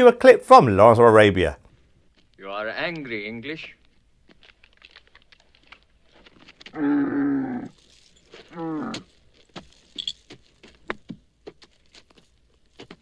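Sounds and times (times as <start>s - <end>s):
camel bellowing: 6.7s - 9.2s.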